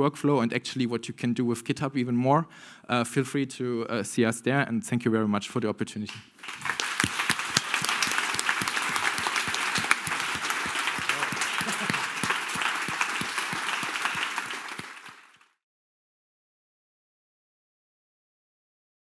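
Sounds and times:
audience applauding: 6.4 - 15.6.

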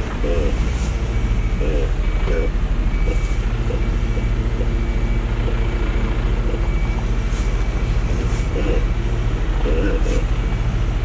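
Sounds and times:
truck diesel engine throbbing: 0.0 - 11.0.

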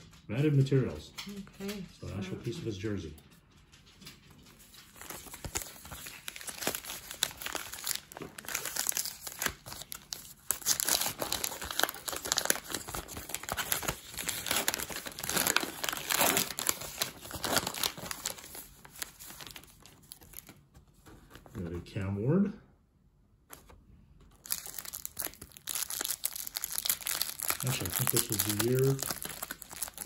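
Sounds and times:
paper wrapper tearing and crinkling: 4.4 - 20.6, 24.4 - 30.0.

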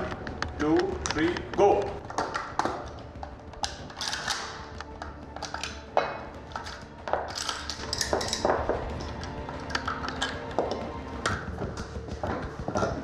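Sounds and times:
metallic clicks and clacks: 0.0 - 13.0.

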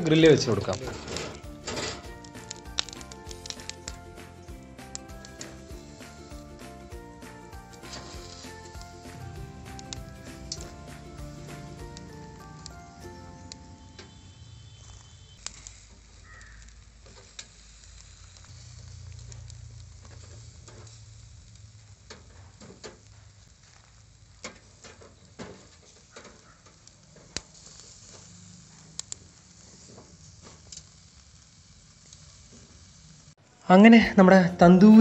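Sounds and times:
chicken sizzling on grill: 0.0 - 35.0
sharp clicks and pops: 0.6 - 11.0, 14.8 - 29.4.

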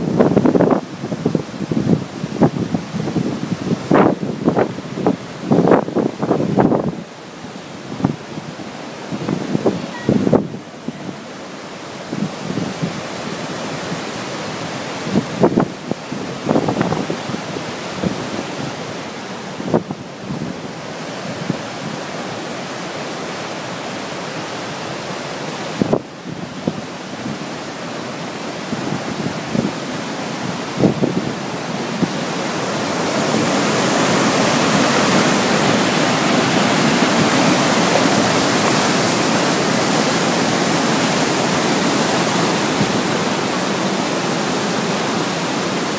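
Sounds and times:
river rushing over boulders: 0.0 - 45.9.

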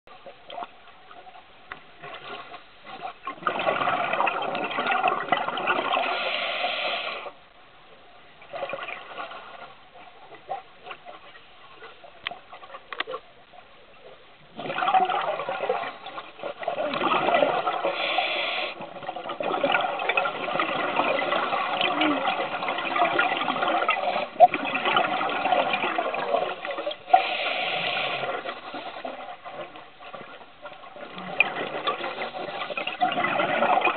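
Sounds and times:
diver exhaling bubbles underwater: 3.2 - 7.3, 14.5 - 33.9.

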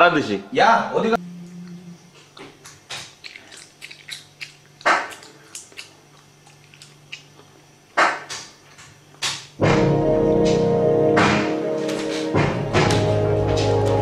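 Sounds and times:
faint steady hum: 0.0 - 11.8
music: 9.6 - 14.0.

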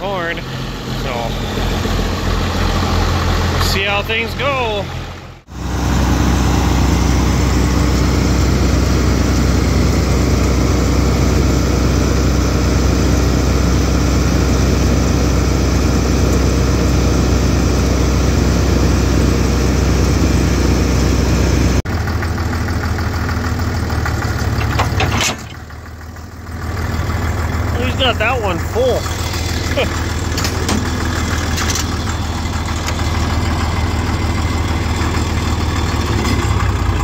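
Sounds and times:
diesel tractor engine running: 0.0 - 37.0.

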